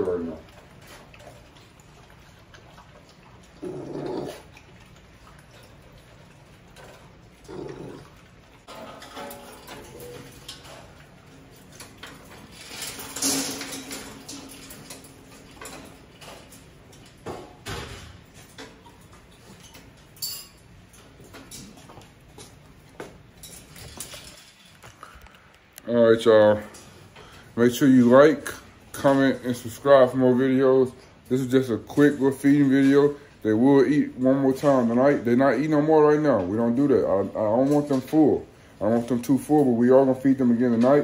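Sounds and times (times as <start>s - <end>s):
puppy vocal sounds: 0.0s - 8.7s
bowls and crate bars clattering: 0.0s - 25.1s, 30.8s - 41.0s.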